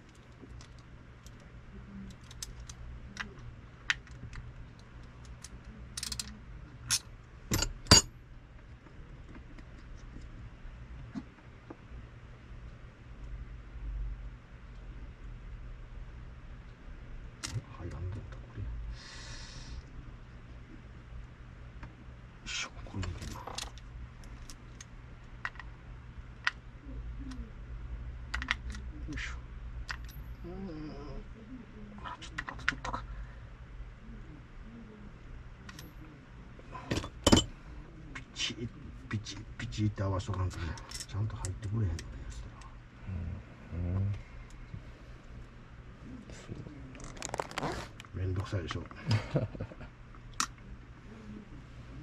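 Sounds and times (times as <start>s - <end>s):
faint low hum: 0.0s - 52.0s
small metal parts clicking: 2.1s - 2.8s, 5.0s - 8.0s
clicks and taps of metal parts: 6.0s - 6.3s.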